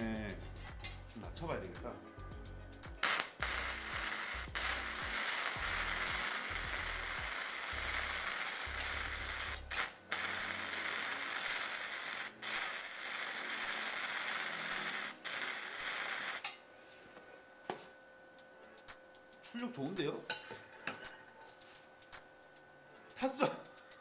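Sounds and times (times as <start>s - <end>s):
welding arc crackling and sizzling: 2.9s - 16.6s.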